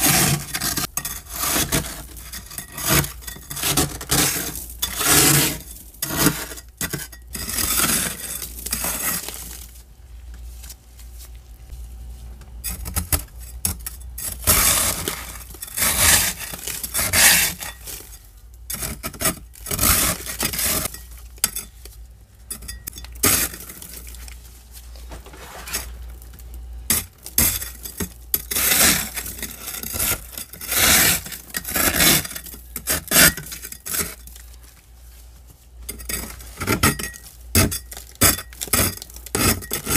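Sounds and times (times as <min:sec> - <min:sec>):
metal scraper scraping frost: 0:00.0 - 0:09.7, 0:13.6 - 0:21.7, 0:22.6 - 0:24.2, 0:26.9 - 0:34.4, 0:35.9 - 0:39.9.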